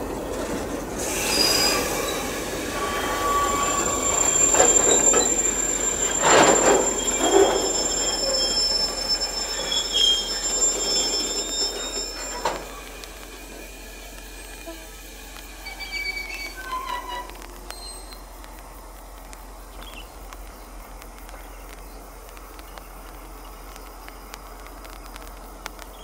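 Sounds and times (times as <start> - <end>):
train wheels squealing on rail: 0.2 - 18.4.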